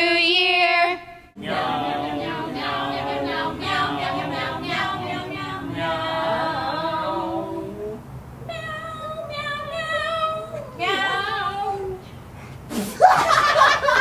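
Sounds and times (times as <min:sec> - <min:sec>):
young voices singing in harmony: 0:01.4 - 0:12.1.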